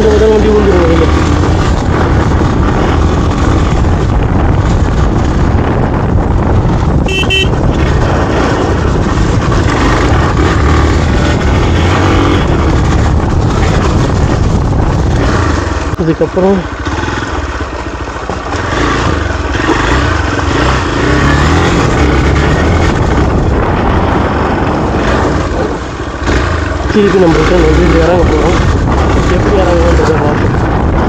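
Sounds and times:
motorcycle engine running: 0:00.0 - 0:31.0
wind rush on microphone: 0:00.0 - 0:31.0
short beeping tone: 0:07.1 - 0:07.5.

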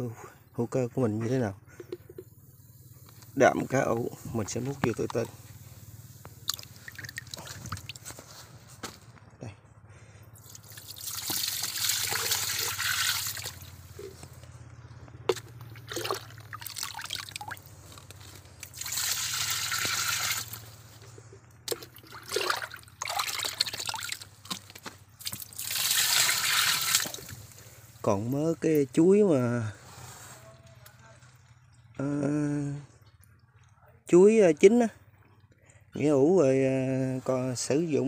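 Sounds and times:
liquid dripping: 0:03.8 - 0:05.7, 0:06.4 - 0:08.2, 0:10.4 - 0:14.1, 0:15.3 - 0:20.7, 0:21.6 - 0:29.0, 0:30.8 - 0:33.8
liquid pouring into plastic barrel: 0:03.8 - 0:05.7, 0:06.4 - 0:08.4, 0:10.4 - 0:14.2, 0:15.2 - 0:17.7, 0:18.3 - 0:20.7, 0:21.6 - 0:28.2.

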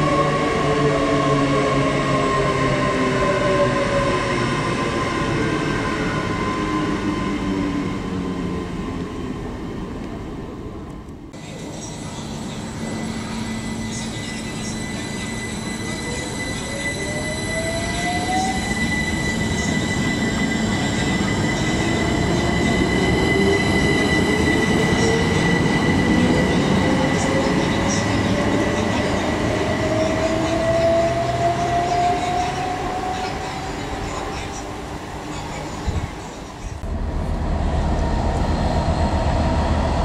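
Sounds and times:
steady high tone: 0:11.4 - 0:40.0.

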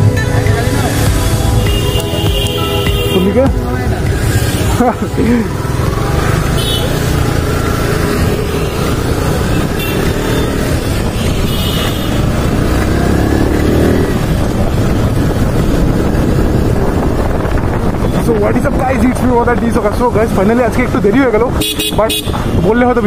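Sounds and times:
motorcycle engine revving: 0:00.7 - 0:22.6.

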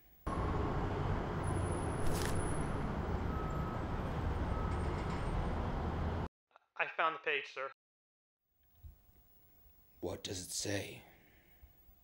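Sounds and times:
book cover rustling: 0:02.0 - 0:02.5.

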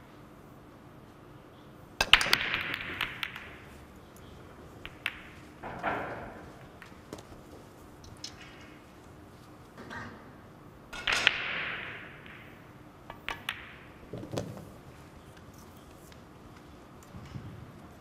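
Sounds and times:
billiard ball clicks: 0:02.0 - 0:07.3, 0:11.0 - 0:15.5
cue ball cracking into balls: 0:02.0 - 0:08.9, 0:10.9 - 0:18.0
billiard balls clattering: 0:02.0 - 0:09.2, 0:10.9 - 0:16.3.

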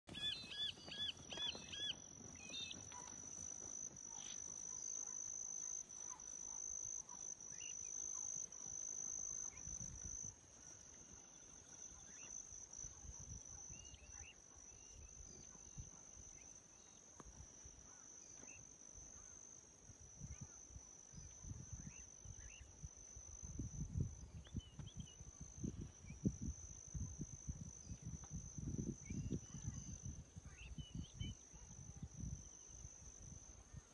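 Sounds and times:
bird chirps: 0:00.1 - 0:03.2
insects droning: 0:00.1 - 0:33.9.

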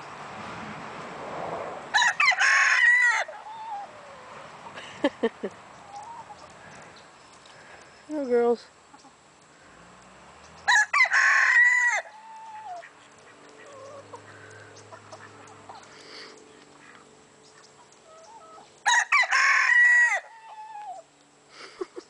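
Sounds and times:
rooster crowing: 0:01.9 - 0:04.2, 0:10.6 - 0:12.8, 0:18.8 - 0:21.1.

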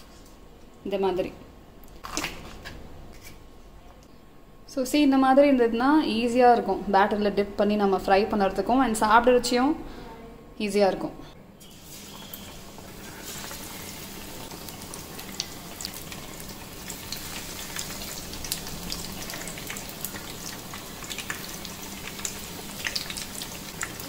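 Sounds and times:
food deep-frying in oil: 0:11.6 - 0:24.0.

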